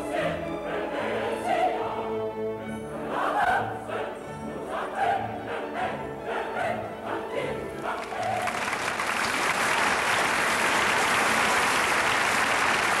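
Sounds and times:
operatic singing: 0.0 - 8.9
audience applauding: 7.8 - 13.0.

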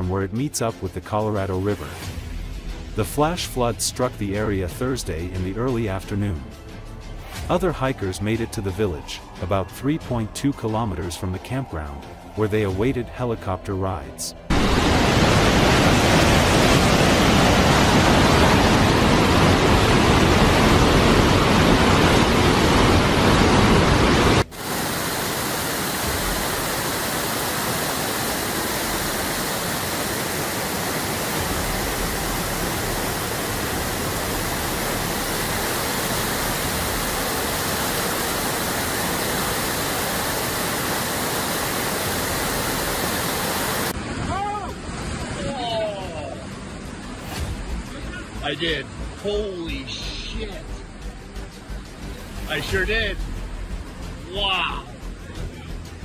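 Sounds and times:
floodwater rushing: 14.5 - 50.6.

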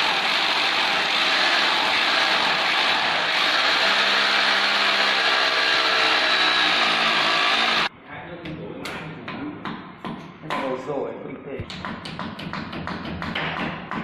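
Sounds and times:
electric drill boring into wall: 0.0 - 7.9.

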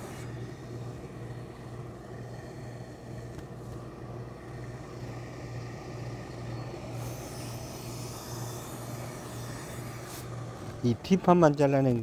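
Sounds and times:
steam iron hissing: 0.0 - 1.0, 4.6 - 10.8
low mechanical hum: 0.0 - 12.0.

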